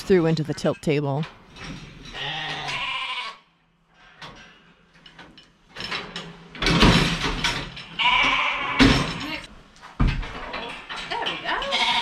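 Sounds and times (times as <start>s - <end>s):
sheep bleating: 2.1s - 3.4s, 8.0s - 8.9s, 11.6s - 12.0s
loud clatter of knocks: 5.0s - 11.5s.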